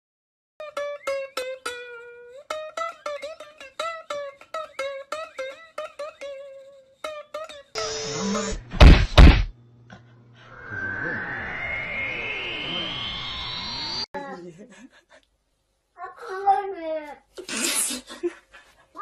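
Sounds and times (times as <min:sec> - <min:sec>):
plucked-string music: 0:00.6 - 0:07.8
noise: 0:07.8 - 0:09.5, 0:10.5 - 0:14.1
loud thumps: 0:08.5 - 0:09.6.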